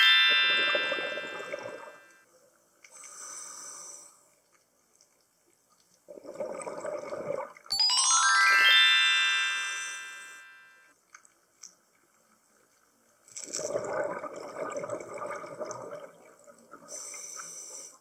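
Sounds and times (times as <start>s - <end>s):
chime sound effect: 0.0s - 2.1s, 7.7s - 10.9s
regulator inhale hiss: 2.9s - 4.2s, 16.9s - 18.0s
exhaled bubbles underwater: 6.1s - 7.7s, 13.4s - 17.1s.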